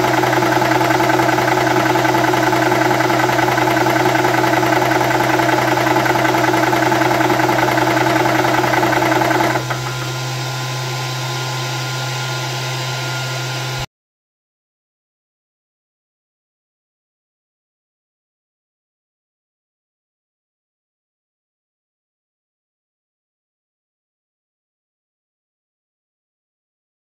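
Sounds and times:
air compressor running: 0.0s - 13.8s.

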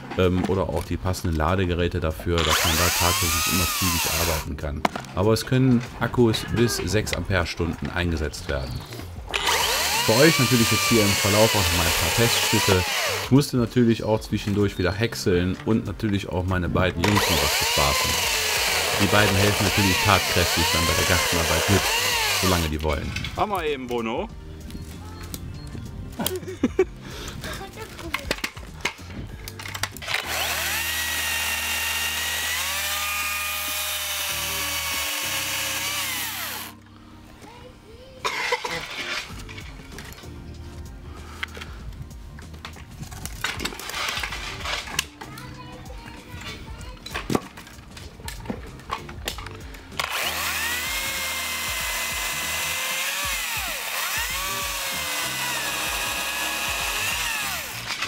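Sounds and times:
chainsaw clicks: 2.4s - 4.5s, 9.3s - 13.3s, 17.0s - 22.9s, 28.1s - 36.8s, 49.2s - 58.0s
chainsaw motor whining: 2.4s - 4.5s, 9.3s - 13.4s, 17.0s - 22.9s, 29.9s - 36.8s, 50.0s - 58.0s.

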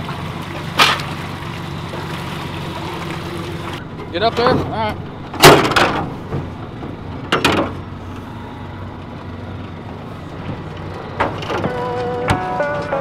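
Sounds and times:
boat engine droning: 0.0s - 13.0s
music: 11.6s - 13.0s.

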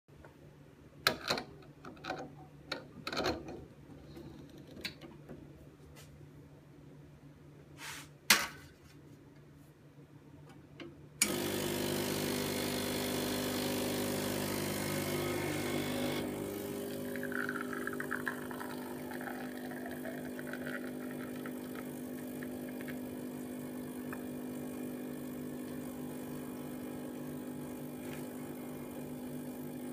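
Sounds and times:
espresso machine pump buzzing: 11.2s - 29.9s.

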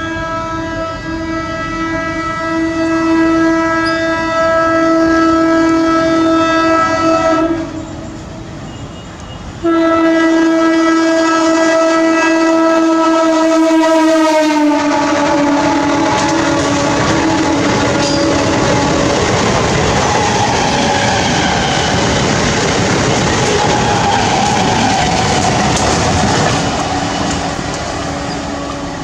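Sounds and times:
train horn blasts: 0.0s - 8.2s, 9.6s - 19.1s
train coaches clattering on rails: 7.7s - 9.9s, 13.4s - 29.0s.

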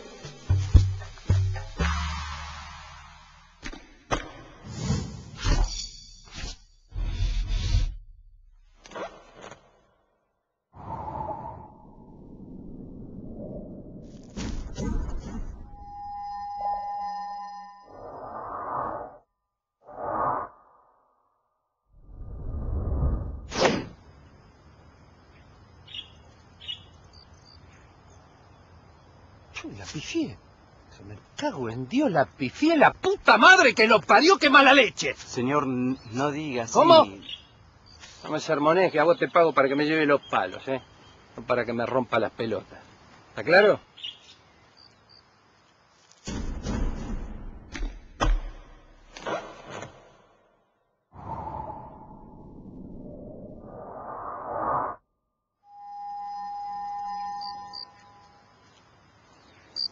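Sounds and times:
faint outdoor background: 0.0s - 59.9s
bird chirps: 25.8s - 28.7s, 35.8s - 41.4s, 43.8s - 45.2s, 55.7s - 58.7s.

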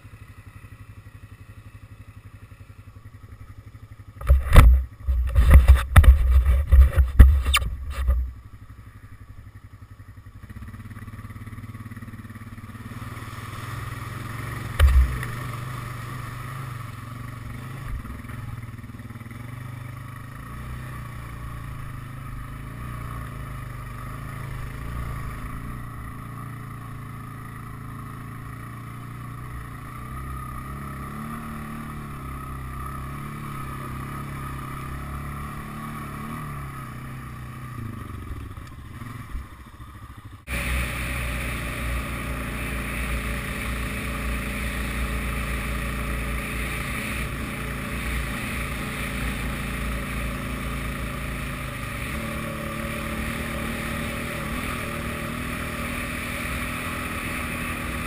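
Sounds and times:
quad engine idling: 0.0s - 58.0s
quad engine under load: 0.0s - 58.0s
loud knocking and rumbling: 14.8s - 15.2s
thump: 14.8s - 15.3s.

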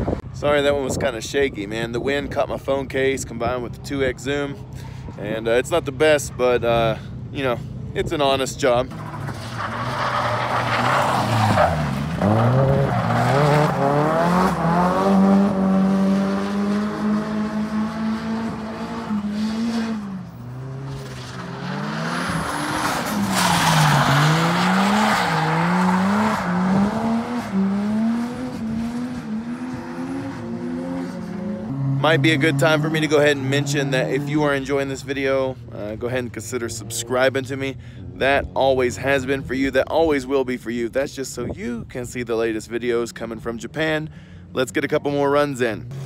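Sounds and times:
car engine revving hard: 9.9s - 34.3s.

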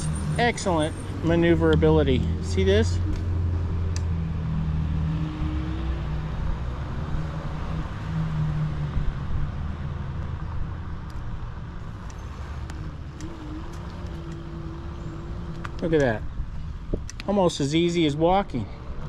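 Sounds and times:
electric motor whine: 11.9s - 16.1s.

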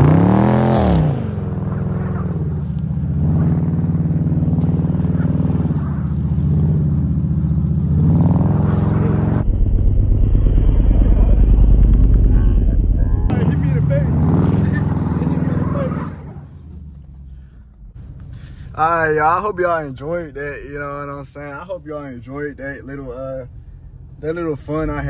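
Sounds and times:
car engine revving: 0.0s - 18.3s.

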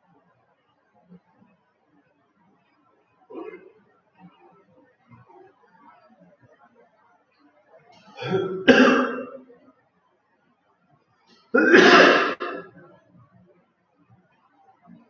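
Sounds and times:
person clearing throat: 3.3s - 3.7s, 8.2s - 9.5s, 11.6s - 12.8s.

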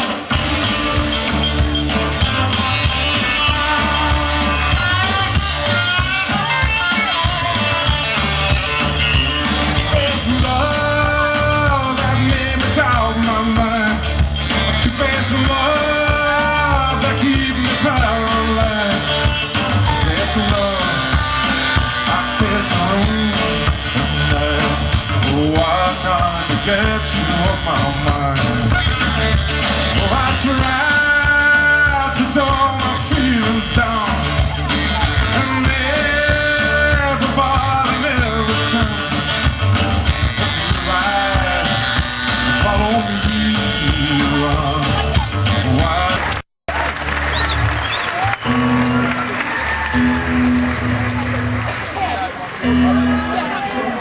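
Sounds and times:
man singing: 0.0s - 8.5s, 9.4s - 46.4s
electric guitar: 0.0s - 54.0s
rock band playing: 0.0s - 54.0s
saxophone: 28.6s - 30.4s.

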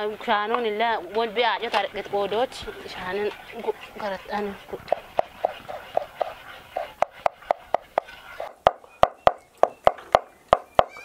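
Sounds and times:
knife chopping on wooden board: 4.9s - 10.7s.

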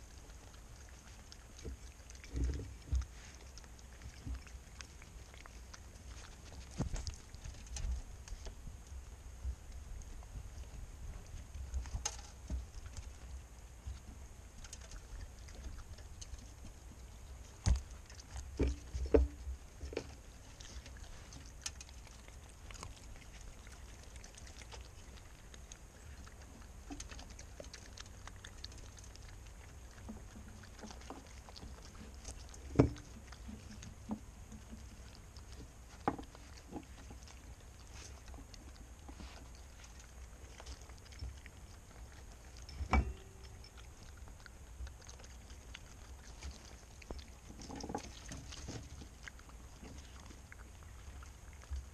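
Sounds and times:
paws rustling in birdseed: 0.0s - 51.9s.

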